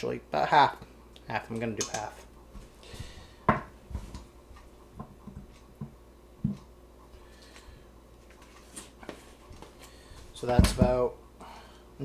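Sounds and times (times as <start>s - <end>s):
kitchen items knocking on wood: 10.5s - 10.9s.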